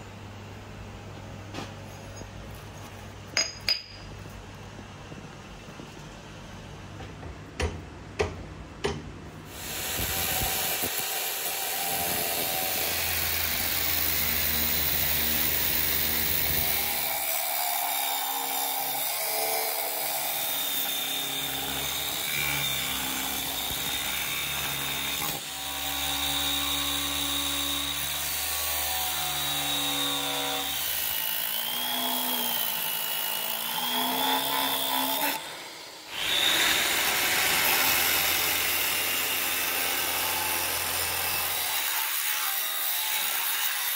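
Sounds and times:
power tool grinding: 0:09.5 - 0:43.9.

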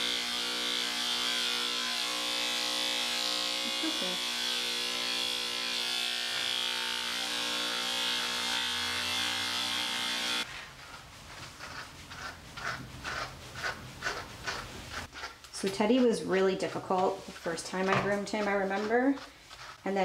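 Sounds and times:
electric clippers humming: 0:00.0 - 0:10.5.

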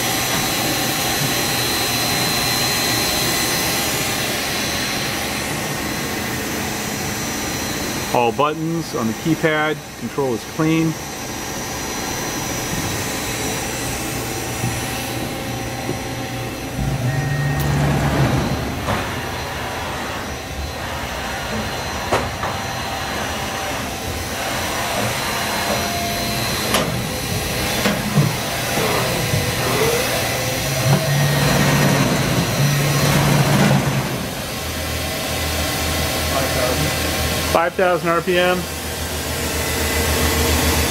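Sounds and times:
machining center whirring: 0:00.0 - 0:40.9
low hum: 0:02.2 - 0:21.7.

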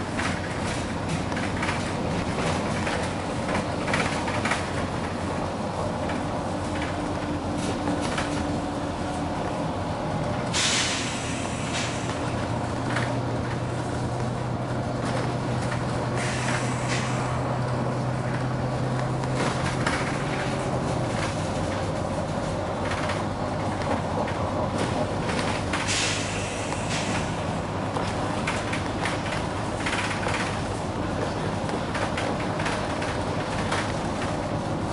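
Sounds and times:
bus engine droning: 0:00.0 - 0:34.9
air release hisses: 0:10.5 - 0:12.1, 0:16.2 - 0:17.2.

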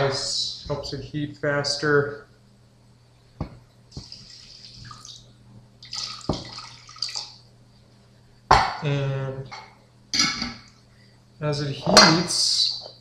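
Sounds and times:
water poured into pot: 0:04.0 - 0:05.2, 0:05.8 - 0:07.4.

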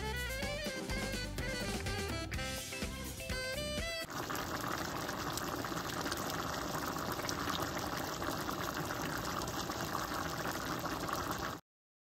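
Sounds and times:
soup bubbling in a pan: 0:04.1 - 0:11.6.

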